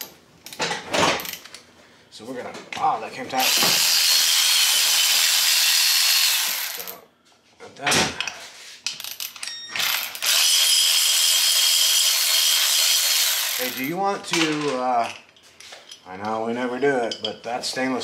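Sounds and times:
electric ratchet whirring: 3.4 - 6.9, 9.8 - 13.9.

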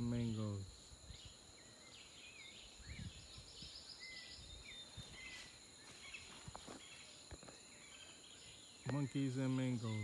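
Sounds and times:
high insect drone: 0.0 - 10.0
whistled bird calls: 2.0 - 7.1, 7.7 - 10.0
bird trill: 2.0 - 10.0.

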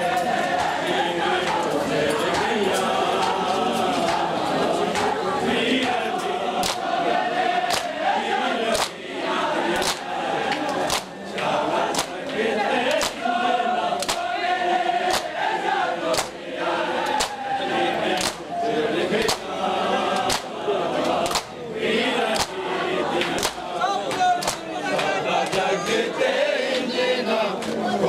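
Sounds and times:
men chanting in chorus: 0.0 - 28.0
chest-beating slaps: 6.6 - 6.9, 7.7 - 7.9, 8.8 - 9.0, 9.8 - 13.2, 14.0 - 14.3, 15.1 - 15.4, 16.1 - 16.4, 17.0 - 17.4, 18.1 - 18.5, 19.2 - 19.5, 20.2 - 20.6, 21.2 - 21.6, 22.4 - 22.6, 23.2 - 25.7.

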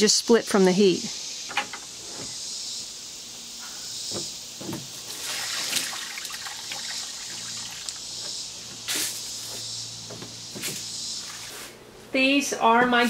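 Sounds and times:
water splashing onto soil: 5.1 - 8.0.

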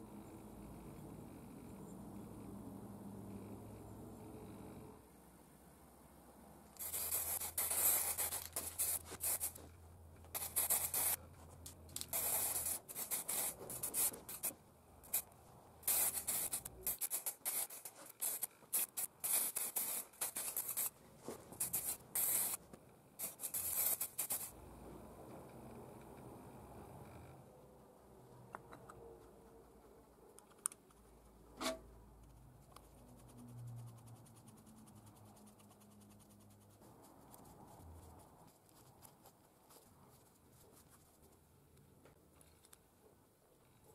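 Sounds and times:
spray paint hissing in bursts: 6.8 - 9.6, 10.3 - 11.2, 12.0 - 21.0, 21.6 - 22.6, 23.2 - 24.6.

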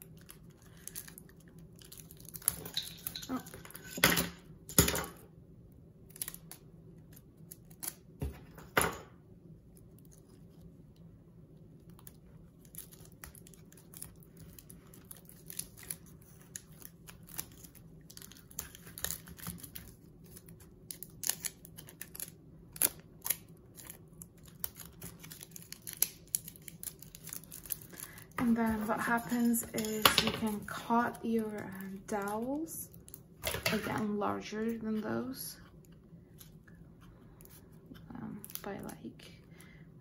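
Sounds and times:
adhesive tape crackling: 0.0 - 2.6, 11.8 - 29.9
tape crinkling clicks: 11.8 - 30.7.

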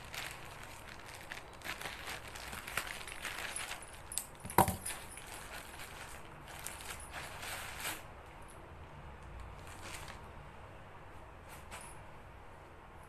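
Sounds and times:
plastic mailer bag crinkling: 0.0 - 8.0.

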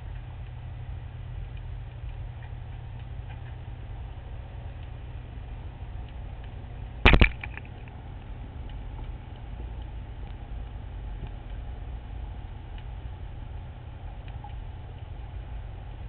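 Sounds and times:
faint ticks: 0.0 - 16.0
sharp clicks underwater: 1.5 - 3.6, 4.7 - 11.7, 12.4 - 15.8.

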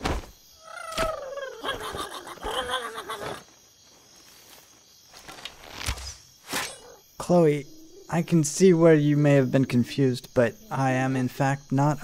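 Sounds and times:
creature cries and snarls: 0.6 - 3.5.

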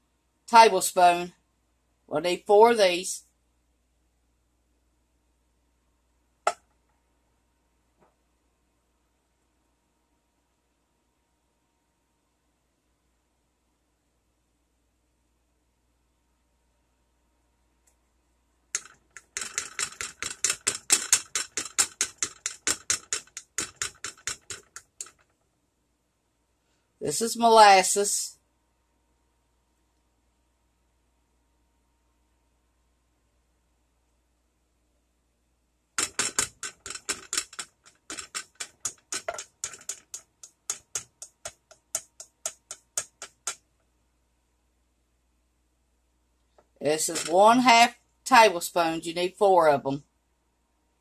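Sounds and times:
rapid sharp clicks: 18.7 - 25.5, 36.0 - 43.7
plastic spoon tapping bottle: 36.0 - 43.6.

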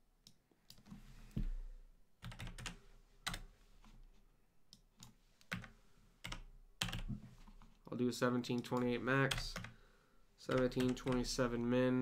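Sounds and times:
computer keyboard typing: 2.2 - 3.5, 5.0 - 7.1, 8.6 - 9.8, 10.5 - 11.4.

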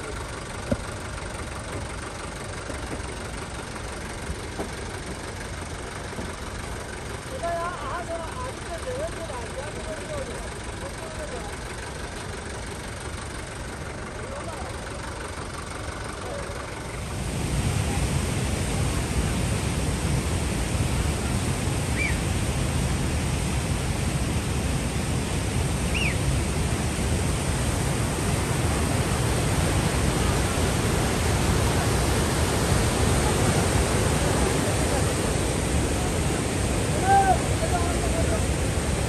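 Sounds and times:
river rushing: 16.7 - 39.0
high chirps: 25.9 - 26.2.

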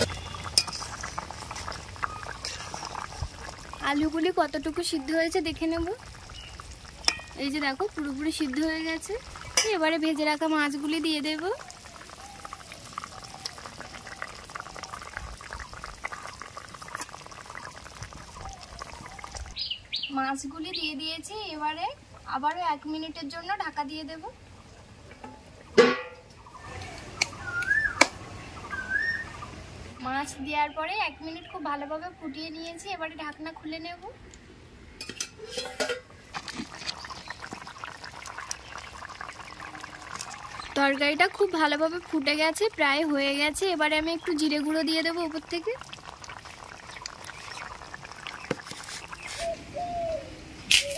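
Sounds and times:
broth boiling in metal pan: 0.0 - 19.6, 20.2 - 34.1, 35.0 - 49.7
metal lid clinking on pan: 7.0 - 7.4, 25.3 - 26.2, 35.0 - 36.1.

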